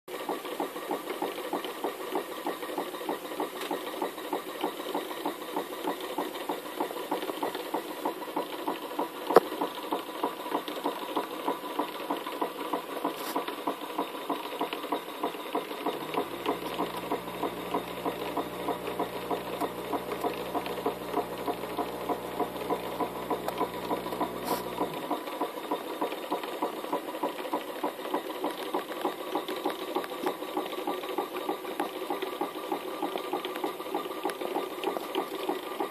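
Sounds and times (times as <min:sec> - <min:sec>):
mechanical clatter: 0:00.1 - 0:35.9
steam engine exhaust beat: 0:15.3 - 0:27.1
low steady hum: 0:16.0 - 0:25.0.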